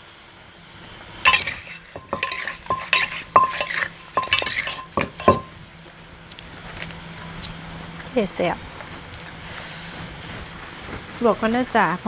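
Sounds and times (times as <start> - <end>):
heavy pestle thuds: 1.3 - 5.5
pestle clinking in clay mortar: 1.3 - 5.6.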